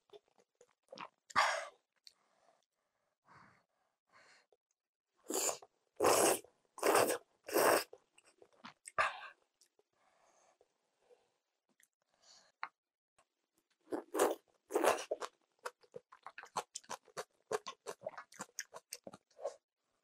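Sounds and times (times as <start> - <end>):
loud noodle slurps: 5.3 - 8.0
soft chewing and mouth clicks: 14.0 - 19.6.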